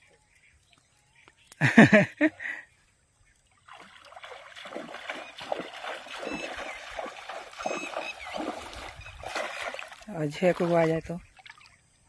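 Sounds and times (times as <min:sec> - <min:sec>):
water sloshing around wading legs: 0:03.4 - 0:12.0.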